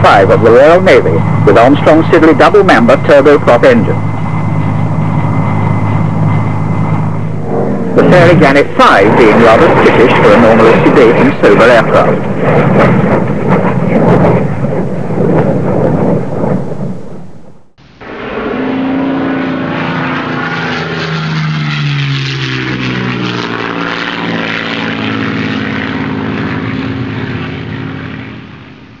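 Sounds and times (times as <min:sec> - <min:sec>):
propeller aircraft droning past: 0:00.0 - 0:29.0
turboprop engine in flight: 0:00.0 - 0:29.0.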